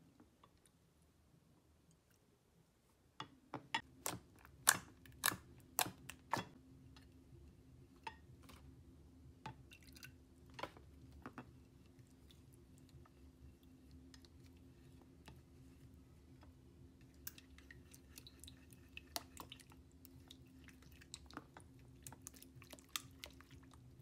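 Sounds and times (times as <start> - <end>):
slime squishing with wet pops: 3.9 - 6.6, 17.1 - 24.0.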